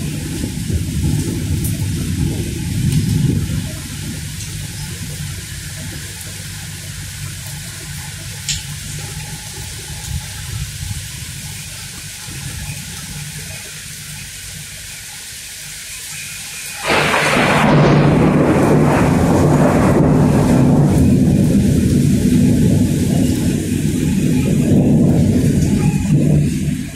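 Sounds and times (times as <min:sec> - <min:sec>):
rain falling: 0:00.0 - 0:26.9
low rumble: 0:16.9 - 0:26.9.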